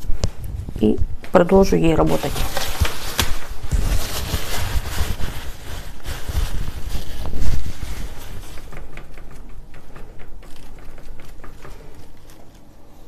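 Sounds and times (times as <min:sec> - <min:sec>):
paint brush scratching canvas: 0:03.7 - 0:12.6.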